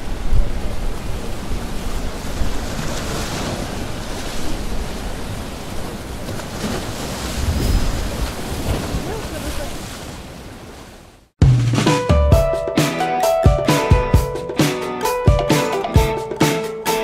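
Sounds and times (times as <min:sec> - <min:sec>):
wind buffeting microphone: 0:00.0 - 0:10.6.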